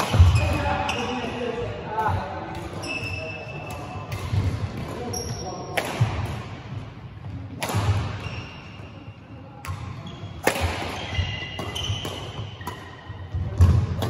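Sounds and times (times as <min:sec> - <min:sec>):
rackets striking shuttlecock: 0:00.0 - 0:01.1, 0:05.7 - 0:06.6, 0:07.5 - 0:08.6, 0:09.6 - 0:14.0
sneakers squeaking on court: 0:00.0 - 0:01.4, 0:02.5 - 0:05.8, 0:07.2 - 0:14.0.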